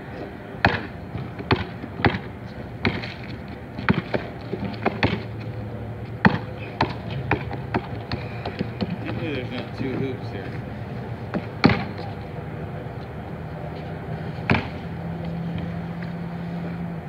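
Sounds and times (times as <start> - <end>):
basketball bouncing on pavement: 0.6 - 10.2, 11.3 - 12.2, 14.4 - 16.2.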